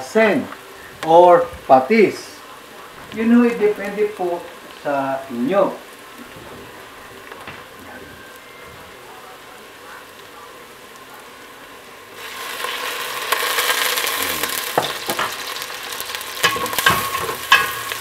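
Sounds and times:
food sizzling in oil: 0:00.0 - 0:18.0
spatula stirring and knocking pot: 0:16.4 - 0:18.0.

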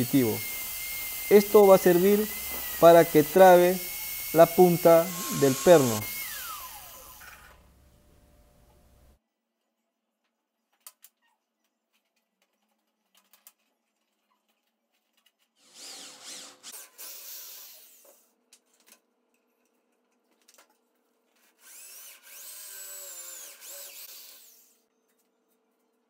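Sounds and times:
electric drill boring into steel: 0:00.0 - 0:07.6, 0:15.6 - 0:18.2, 0:21.6 - 0:24.8.

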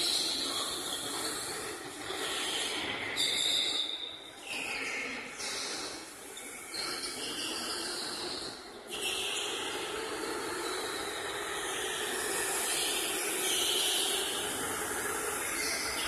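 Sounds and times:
electric go-karts whining: 0:00.0 - 0:16.0.

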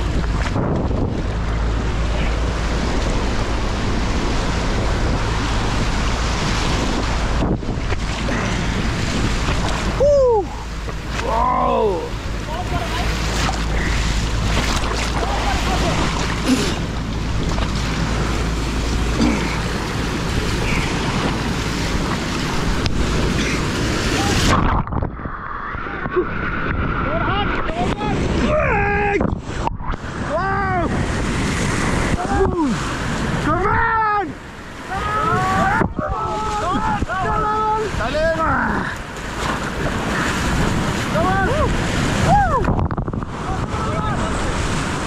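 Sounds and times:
river water rushing and splashing: 0:00.0 - 0:45.0
wind rumble on microphone: 0:00.0 - 0:45.0
river rapids rushing: 0:08.0 - 0:24.7.

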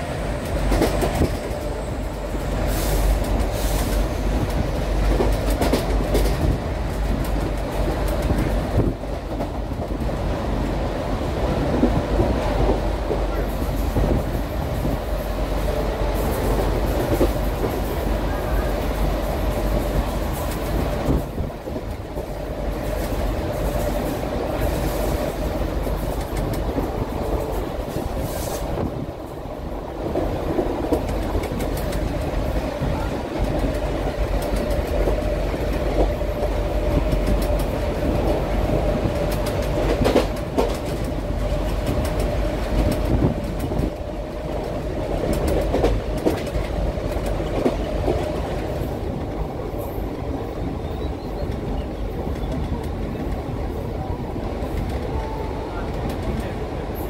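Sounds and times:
diesel locomotive engines droning: 0:00.0 - 0:57.0
train wheels rumbling: 0:00.0 - 0:57.0
wheels clicking over rail joints: 0:30.0 - 0:50.0.

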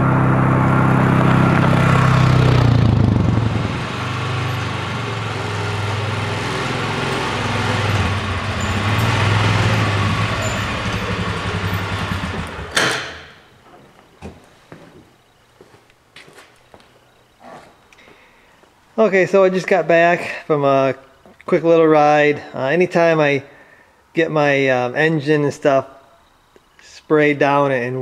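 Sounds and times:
utility vehicle engine running: 0:00.0 - 0:13.4
sharp knock: 0:12.7 - 0:13.4.

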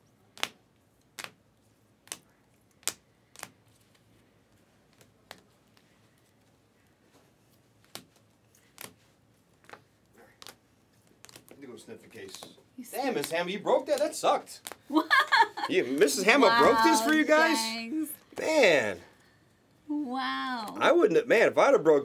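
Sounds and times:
sleeved cards flipping clicks: 0:00.4 - 0:01.4, 0:02.0 - 0:04.0, 0:07.8 - 0:11.6, 0:13.2 - 0:14.8.

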